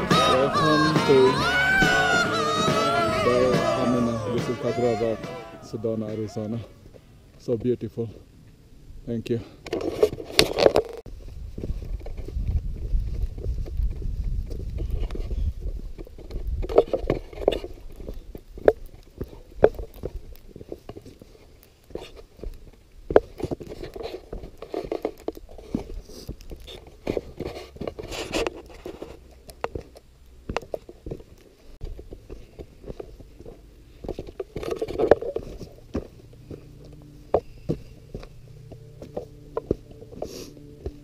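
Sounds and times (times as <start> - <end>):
footsteps on gritty stone: 10.0 - 41.0.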